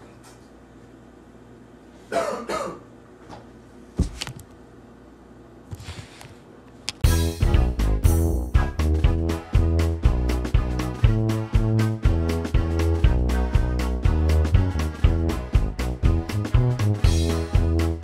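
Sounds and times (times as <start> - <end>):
cough-like vocal sound: 2.1 - 2.9
music: 7.0 - 18.0.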